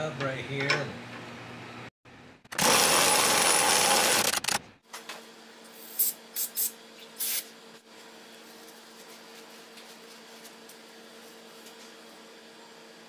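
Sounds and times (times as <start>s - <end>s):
power tool running: 2.5s - 4.6s.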